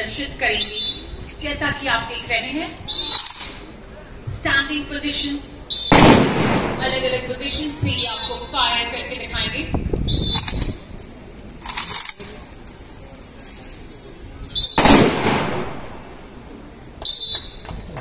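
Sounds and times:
rifle shots with echo: 0:05.9 - 0:07.3, 0:14.7 - 0:16.3.

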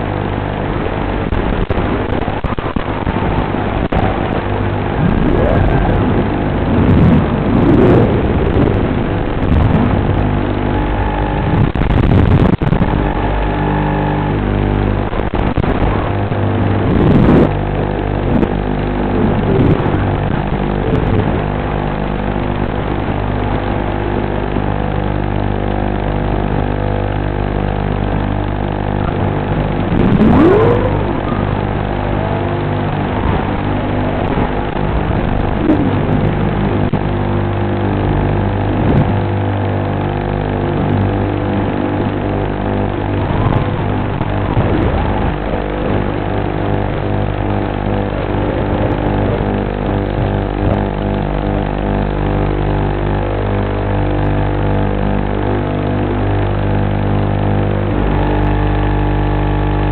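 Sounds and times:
drone motors whining: 0:02.0 - 0:17.5, 0:27.6 - 0:39.2.

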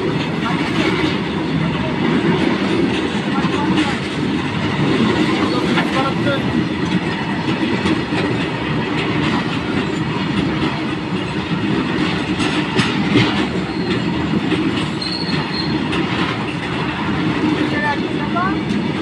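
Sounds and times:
train wheels rumbling over rails: 0:00.0 - 0:19.0
clicks at rail joints: 0:02.2 - 0:17.8
wheel squeal: 0:13.6 - 0:14.2, 0:14.9 - 0:15.9.

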